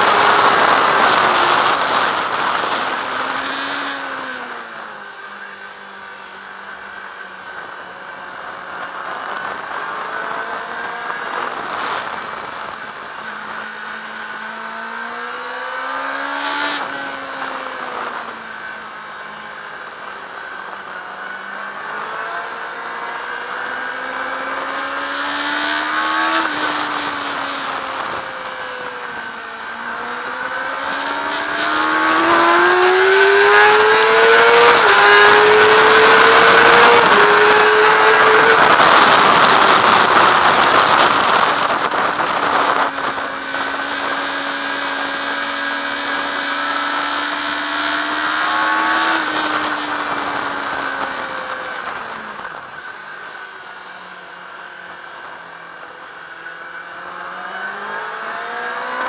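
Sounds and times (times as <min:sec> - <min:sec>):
wind rushing over microphone: 0:00.0 - 0:05.0, 0:20.0 - 0:53.2
motorcycle engine revving: 0:00.0 - 0:59.0.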